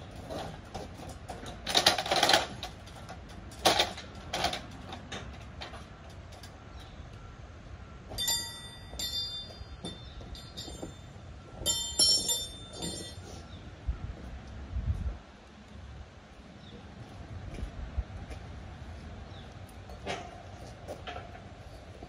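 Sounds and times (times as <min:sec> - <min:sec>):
ladder scraping and knocking: 0:00.0 - 0:06.5, 0:08.1 - 0:13.4, 0:19.9 - 0:22.0
trolley wheels squealing on steel beam: 0:08.1 - 0:13.6.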